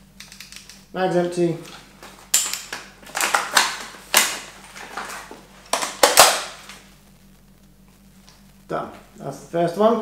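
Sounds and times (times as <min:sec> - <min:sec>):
paintball magazine clacks and rustles: 0:01.7 - 0:06.5.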